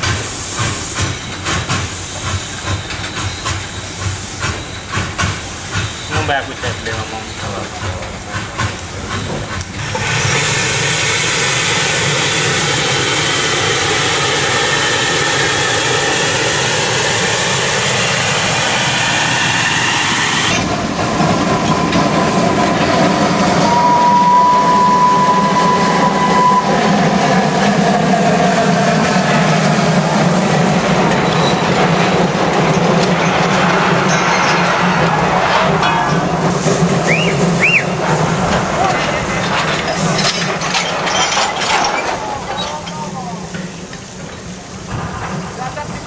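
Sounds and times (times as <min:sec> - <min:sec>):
steam locomotive running: 0:00.0 - 0:46.0
steady high tone: 0:23.4 - 0:27.1.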